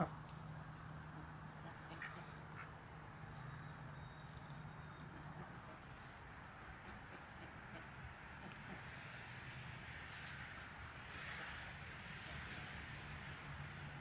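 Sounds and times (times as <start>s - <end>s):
turkeys clucking: 0.0s - 3.4s
small birds chirping: 0.0s - 11.8s, 12.4s - 14.0s.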